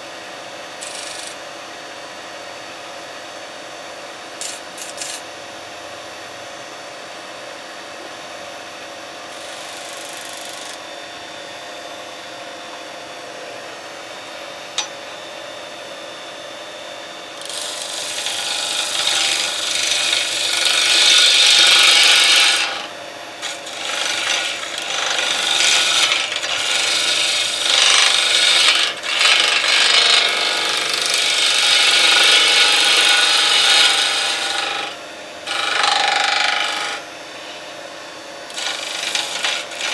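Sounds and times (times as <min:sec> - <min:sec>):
turning tool cutting wood: 0:00.8 - 0:01.4, 0:04.4 - 0:05.2, 0:09.3 - 0:10.8, 0:17.4 - 0:37.1, 0:38.4 - 0:39.9
wood lathe humming: 0:00.8 - 0:01.4, 0:09.3 - 0:10.8, 0:17.1 - 0:39.9.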